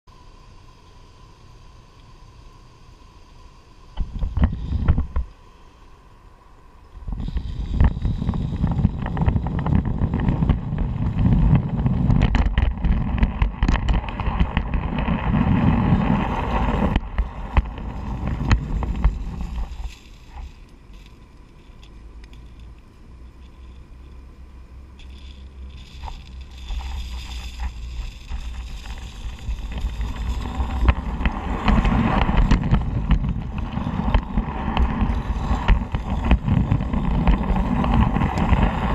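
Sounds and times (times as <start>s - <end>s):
wind on microphone: 4.0s - 5.3s, 6.9s - 21.1s, 25.0s - 38.9s
miniature train rumbling on track: 7.1s - 21.0s, 24.9s - 38.9s
wheels clattering on rails: 7.2s - 22.7s, 24.9s - 38.9s.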